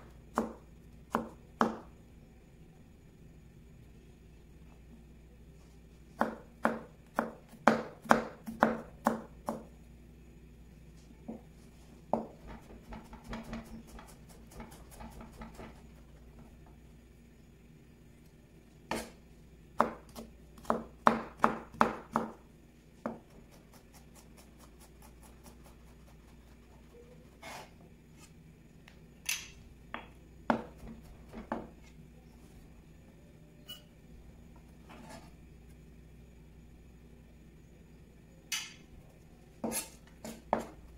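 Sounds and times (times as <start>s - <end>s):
knife chopping on cutting board: 0.4s - 1.8s, 6.2s - 9.6s, 12.1s - 15.8s, 18.9s - 19.2s, 19.8s - 22.4s, 30.5s - 31.7s, 39.6s - 40.8s.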